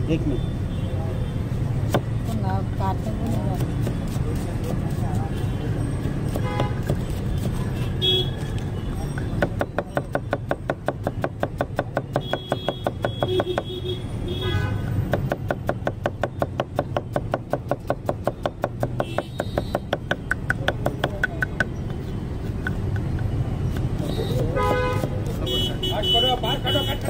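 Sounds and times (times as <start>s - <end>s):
knife chopping onions on wood: 1.9s - 5.2s, 6.2s - 7.8s, 9.2s - 13.8s, 15.0s - 25.8s.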